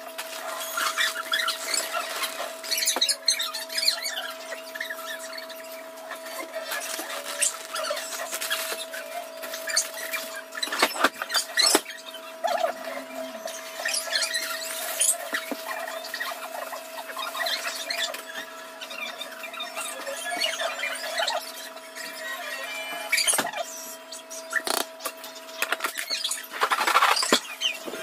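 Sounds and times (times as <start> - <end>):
sped-up squeaks and clicks: 0.4 - 28.0
steady hum: 4.0 - 17.0.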